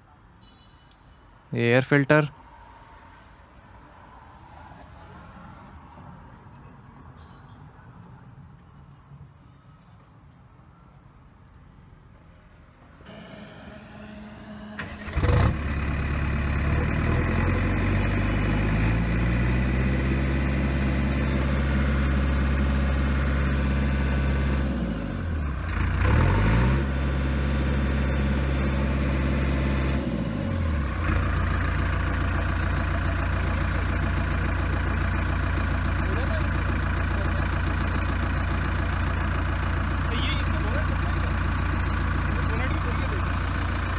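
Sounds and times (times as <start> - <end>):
diesel engine starting and revving: 13.1 - 43.9.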